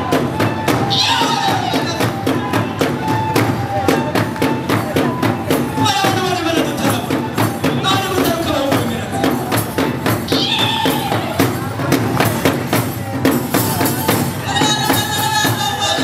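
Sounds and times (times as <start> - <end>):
group singing: 0.0 - 3.7
drums and hand claps: 0.0 - 16.0.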